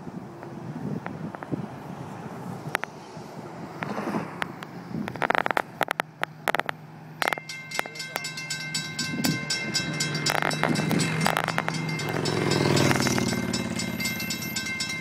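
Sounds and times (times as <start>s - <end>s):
car passing: 0.0s - 15.0s
crossing signal bells ringing: 7.2s - 15.0s.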